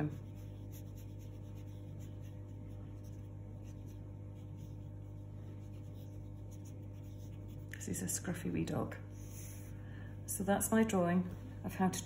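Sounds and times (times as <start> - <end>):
felt-tip pen scratching on paper: 0.0 - 7.8
steady low hum: 0.0 - 12.0.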